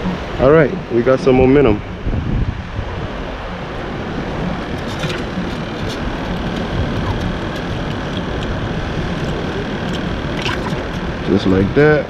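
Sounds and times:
wind rumbling on microphone: 0.0s - 12.0s.

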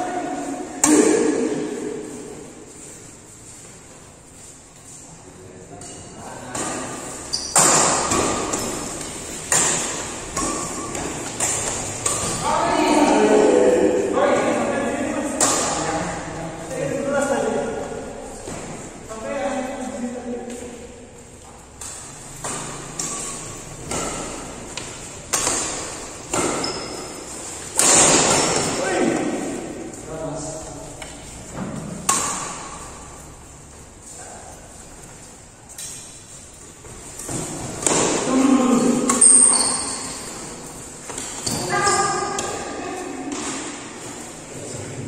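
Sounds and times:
rackets hitting shuttlecock: 0.8s - 2.0s, 5.8s - 13.5s, 15.3s - 15.9s, 21.4s - 30.0s, 30.9s - 33.2s, 37.1s - 44.0s.

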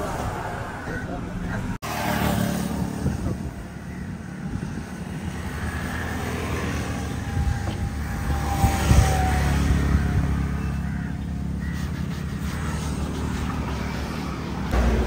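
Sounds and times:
vehicle engine running: 3.1s - 15.0s.

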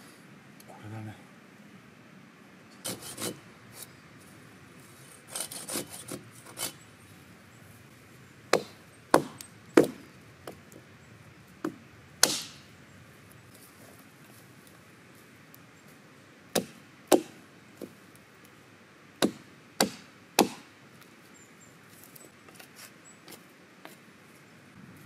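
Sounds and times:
hatchet chopping branches: 5.3s - 6.8s, 8.5s - 10.8s, 11.6s - 12.7s, 16.5s - 18.0s, 19.2s - 20.7s.

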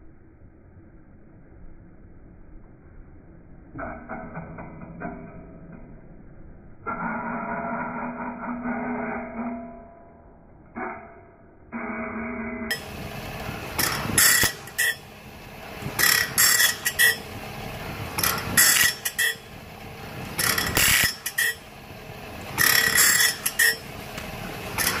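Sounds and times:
abrasive wheel grinding saw teeth: 12.7s - 25.0s
saw grinder running: 12.7s - 25.0s.

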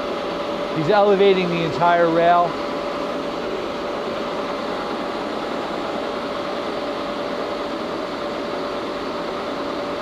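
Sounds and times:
lathe humming with whining tone: 0.0s - 10.0s.

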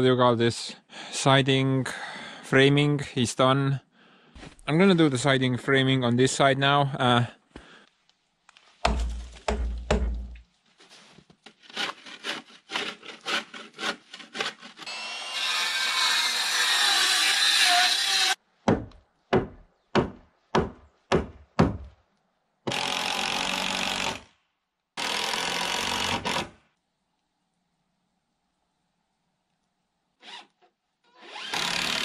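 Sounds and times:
hand saw cutting board: 11.5s - 18.4s
power tool running: 14.8s - 18.4s.

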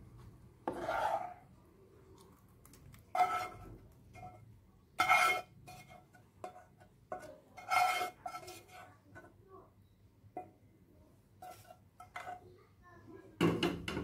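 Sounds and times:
spatula scraping saucepan: 0.6s - 1.5s, 3.1s - 9.4s, 11.4s - 12.5s.

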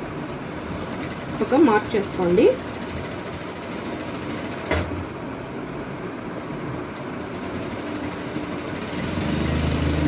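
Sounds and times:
sewing machine running: 0.6s - 4.8s, 7.1s - 10.0s.

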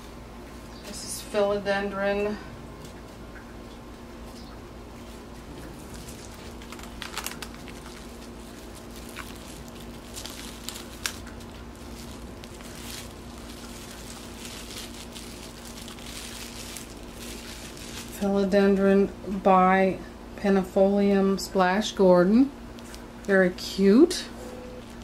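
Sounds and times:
steady low hum: 0.0s - 25.0s
plastic and paper packing crinkling: 5.0s - 18.6s, 22.8s - 23.4s, 24.8s - 25.0s.

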